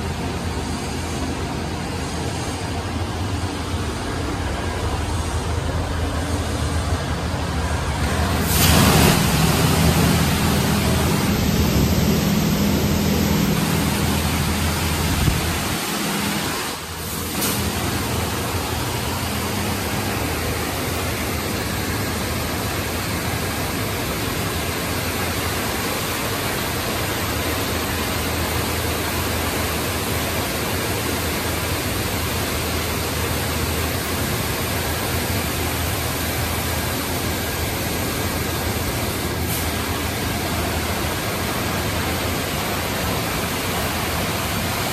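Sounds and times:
low hum: 0:00.0 - 0:16.5
high-pressure water spray hiss: 0:08.0 - 0:44.9.

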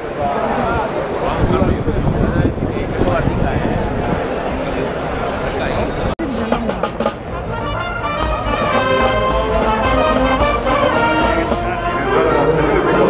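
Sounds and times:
brass marching band: 0:06.1 - 0:13.0.

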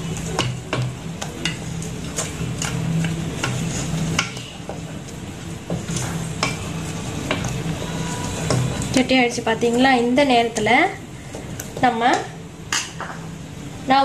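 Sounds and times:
wooden spatula scraping a pan: 0:01.5 - 0:05.0, 0:05.6 - 0:10.3.

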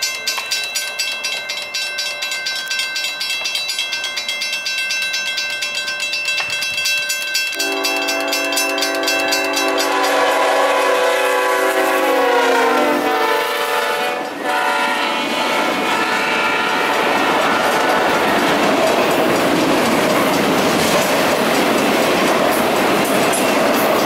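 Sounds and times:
railroad crossing bell ringing: 0:00.0 - 0:24.0
train rumbling and clacking: 0:00.0 - 0:24.0
train horn: 0:07.6 - 0:18.3.

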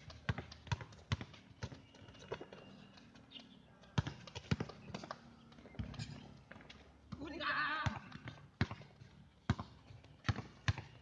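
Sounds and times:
basketball bouncing on hard court: 0:00.0 - 0:02.5, 0:04.0 - 0:11.0.

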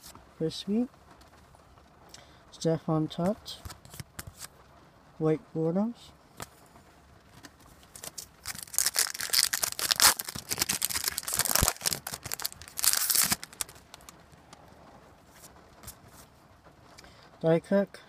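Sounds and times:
foil wrapper crinkling and tearing: 0:07.8 - 0:14.2.

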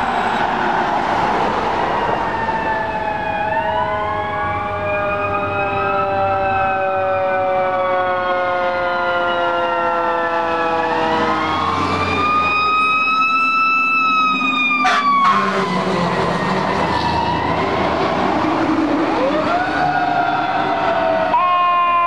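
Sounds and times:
fire engine siren wailing: 0:00.0 - 0:22.0
short sharp horn blast: 0:14.8 - 0:15.7.

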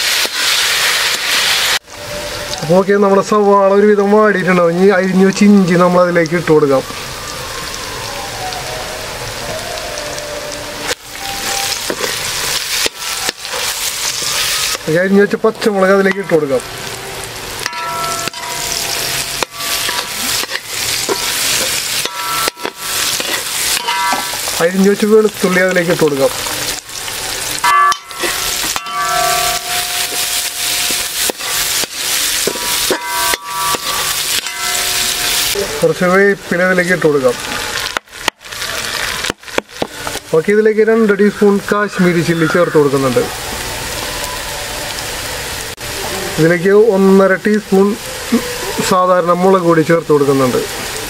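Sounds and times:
onions sizzling in hot oil: 0:00.0 - 0:51.0
spatula scraping a wok: 0:17.6 - 0:24.6, 0:28.1 - 0:35.6.

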